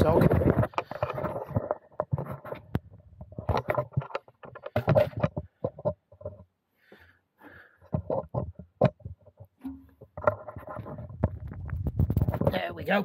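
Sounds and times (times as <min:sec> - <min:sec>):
irregular knocks and taps: 0:07.8 - 0:12.4.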